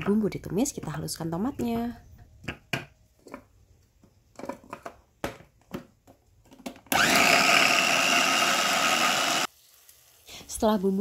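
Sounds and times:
electric chopper motor whirring: 6.9 - 9.5.

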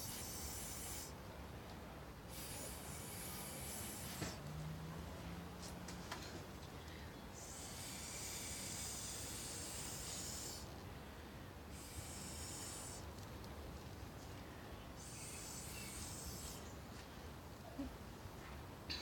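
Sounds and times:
hissing puffs through straw: 2.3 - 4.4, 7.4 - 10.7, 11.7 - 13.0, 15.0 - 16.7.

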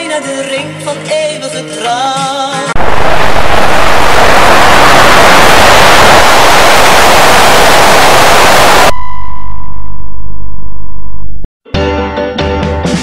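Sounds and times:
tv static hiss: 2.8 - 9.0.

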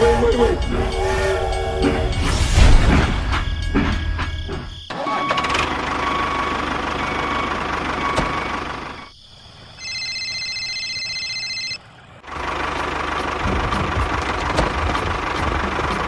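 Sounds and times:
tractor engine rumbling: 0.0 - 9.2, 10.8 - 16.0
mobile phone ringtone: 9.8 - 11.8.

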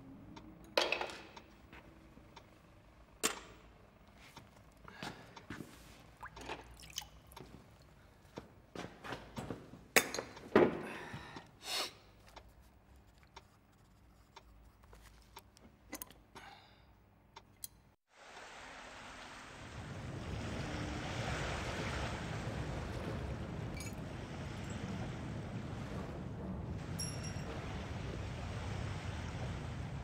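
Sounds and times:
wind: 0.0 - 30.0
river water rushing: 18.1 - 30.0.

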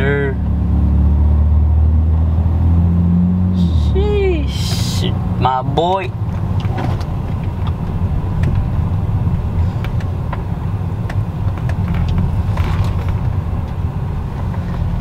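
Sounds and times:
car cabin rumble: 3.6 - 15.0.

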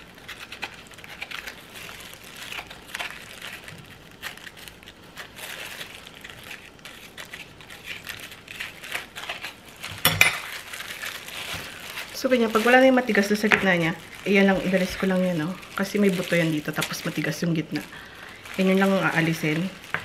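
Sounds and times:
plastic gloves crinkling: 0.0 - 20.0.

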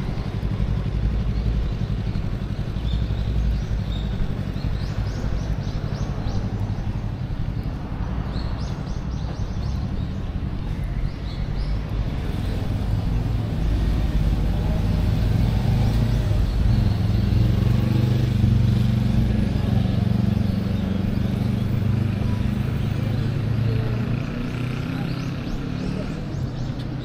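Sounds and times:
vehicle engine passing by: 11.6 - 27.0.

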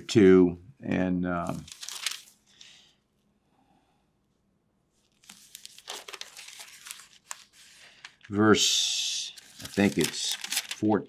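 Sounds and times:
book pages rustling: 1.4 - 2.4, 5.0 - 8.3, 9.3 - 10.9.

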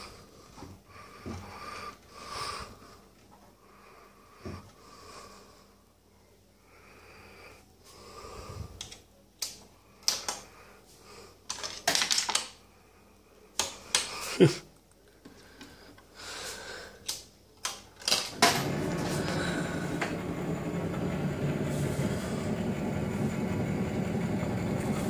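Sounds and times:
soft breathy noises: 0.0 - 11.5, 12.6 - 17.5, 18.9 - 20.7.

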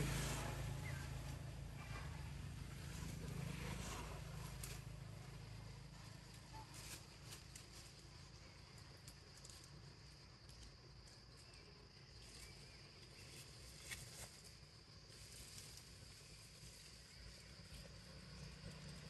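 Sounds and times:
insects droning: 1.8 - 19.0
soft ticks and rustles: 6.0 - 17.0.

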